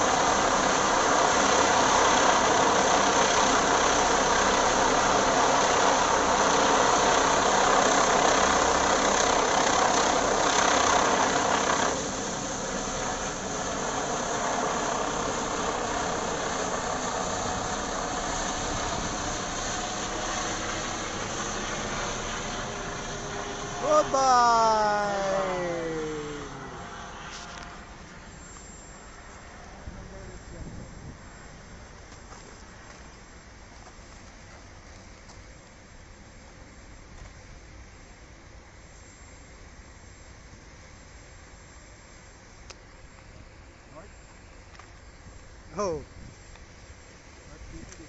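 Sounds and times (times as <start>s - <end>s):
helicopter passing overhead: 0.0s - 31.5s.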